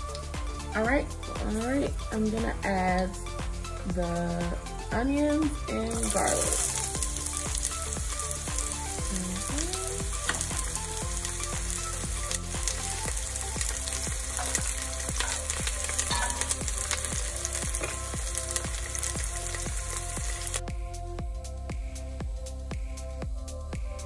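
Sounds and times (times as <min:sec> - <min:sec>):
onions sizzling in oil: 0:05.1 - 0:20.6
knife stirring in pot: 0:14.4 - 0:17.0.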